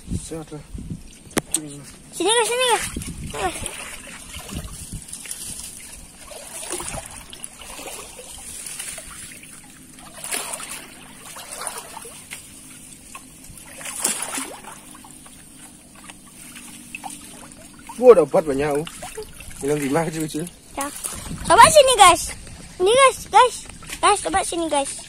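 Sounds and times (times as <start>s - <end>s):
river water sloshing and trickling: 0.6s - 25.0s
net splashing in water: 2.4s - 21.5s.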